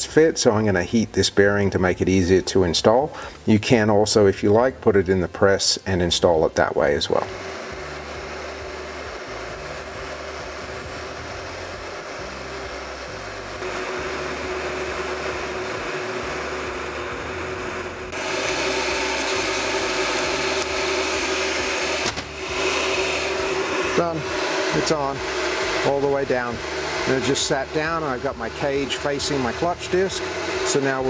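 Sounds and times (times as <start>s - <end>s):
heat gun fan humming: 0.0s - 31.0s.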